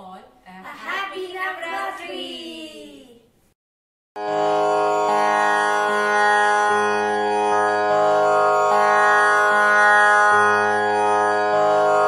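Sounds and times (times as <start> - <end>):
calm instrumental music: 4.2 - 12.0.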